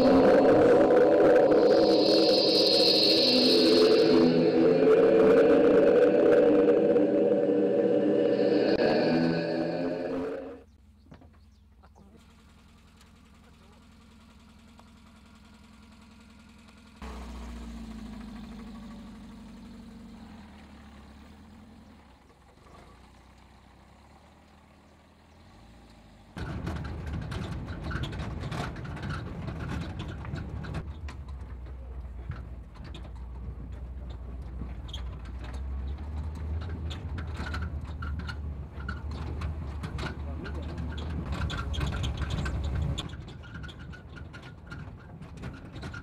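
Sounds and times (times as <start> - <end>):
truck rumbling on rough track: 10.7 - 46.0.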